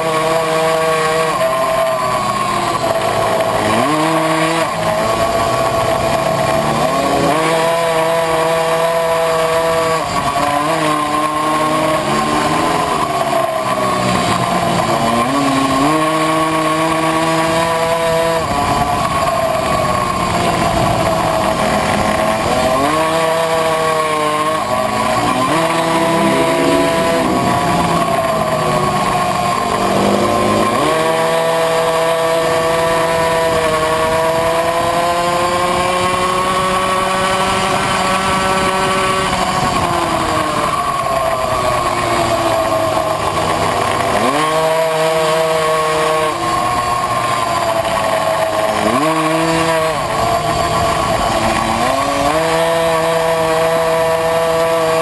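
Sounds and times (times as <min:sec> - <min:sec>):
two-stroke moped engine racing: 0:00.0 - 0:55.0.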